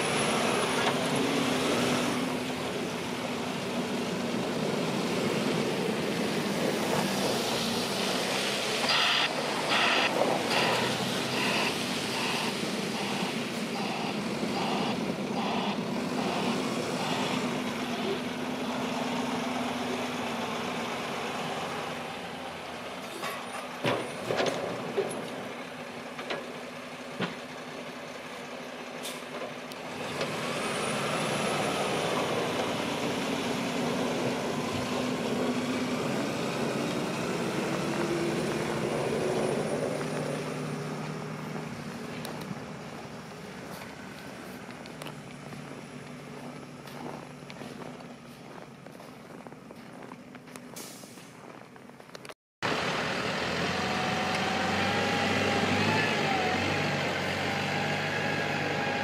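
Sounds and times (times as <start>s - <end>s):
truck engine drone: 0.0s - 59.0s
backup alarm beeping: 8.9s - 17.4s.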